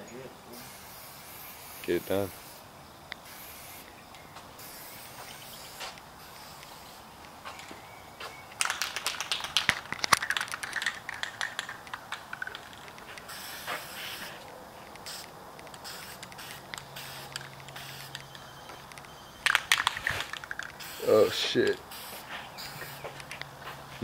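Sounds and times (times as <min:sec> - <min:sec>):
spray paint hissing: 0:00.5 - 0:07.2, 0:08.5 - 0:23.8
spray can rattling when shaken: 0:08.5 - 0:14.4, 0:15.0 - 0:23.3.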